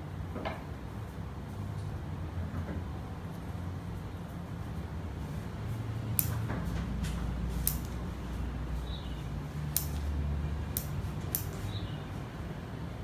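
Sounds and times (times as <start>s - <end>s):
scissors snipping: 6.2s - 6.5s, 7.6s - 8.0s, 9.7s - 11.7s.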